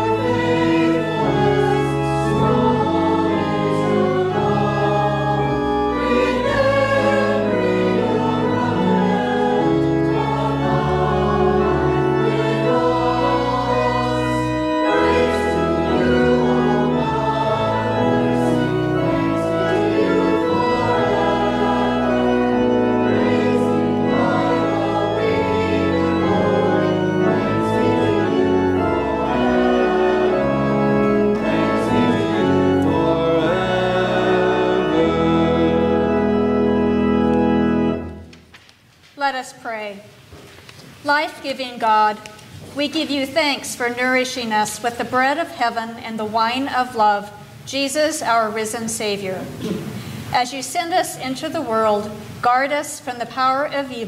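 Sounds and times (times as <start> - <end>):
church choir singing: 0.0 - 38.3
organ accompaniment: 0.0 - 38.6.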